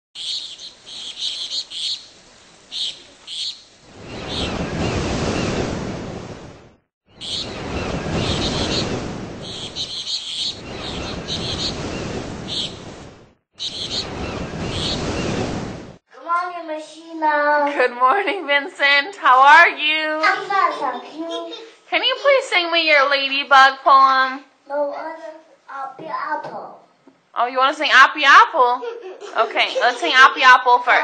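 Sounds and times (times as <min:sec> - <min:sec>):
birds chirping: 0:00.2 - 0:05.7, 0:07.1 - 0:15.6, 0:29.6 - 0:31.0
ocean waves washing in: 0:00.6 - 0:16.0.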